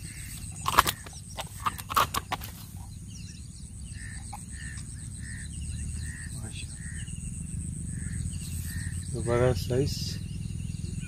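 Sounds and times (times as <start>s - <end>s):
faint bird chirping: 0.0s - 11.0s
sharp clicks and rustles: 0.3s - 2.8s.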